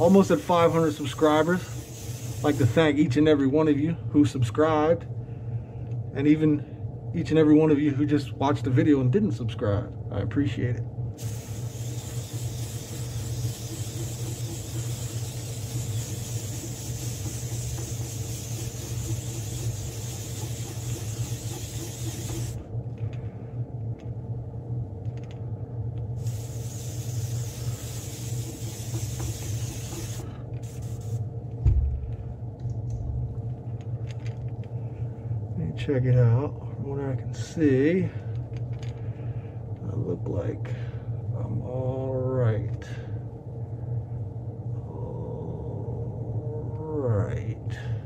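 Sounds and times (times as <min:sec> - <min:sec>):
airbrush spraying hiss: 0:00.0 - 0:02.9, 0:11.2 - 0:22.6, 0:26.2 - 0:31.2
air compressor humming: 0:00.0 - 0:03.2, 0:11.2 - 0:23.8, 0:25.5 - 0:35.5
low thump: 0:31.6 - 0:32.1.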